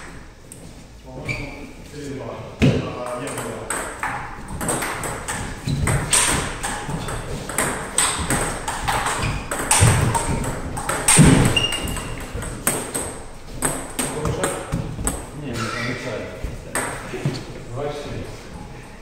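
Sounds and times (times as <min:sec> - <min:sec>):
table tennis ball clicking: 0:03.3 - 0:14.0.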